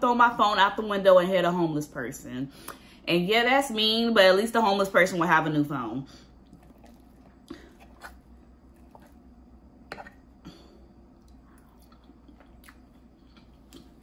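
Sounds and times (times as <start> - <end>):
quiet chewing: 6.2 - 14.0.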